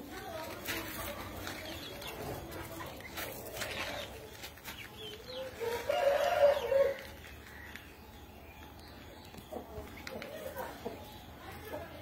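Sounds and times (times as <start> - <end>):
rooster crowing: 5.6 - 7.0.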